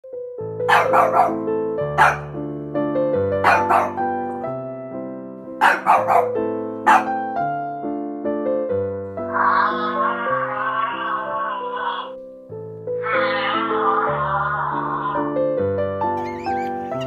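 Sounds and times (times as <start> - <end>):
electric piano music: 0.1 - 17.0
dog barking: 0.7 - 2.4, 3.4 - 4.1, 5.6 - 7.2.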